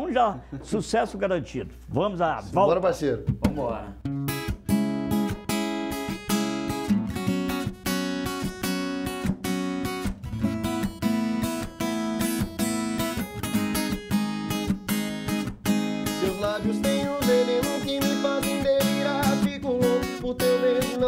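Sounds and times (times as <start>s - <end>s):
acoustic guitar strumming: 3.3s - 21.0s.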